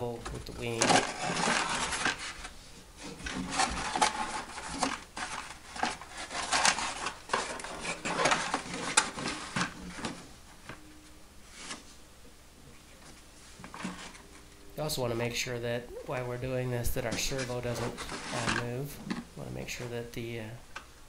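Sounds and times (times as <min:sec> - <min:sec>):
foam rubbing and scraping: 0:00.7 - 0:10.2, 0:17.0 - 0:18.8.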